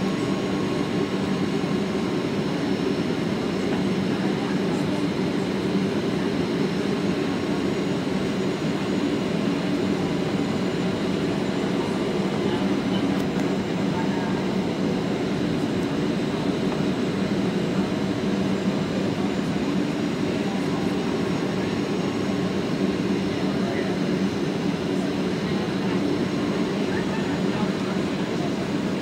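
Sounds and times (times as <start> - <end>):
jet engine drone in cabin: 0.0 - 29.0.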